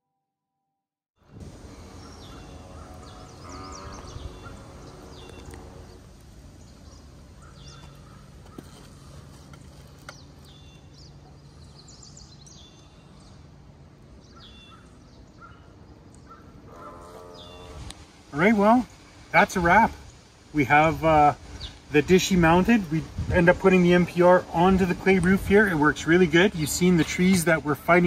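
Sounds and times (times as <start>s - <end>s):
small bird chirping: 2.0s - 6.0s, 6.6s - 13.4s.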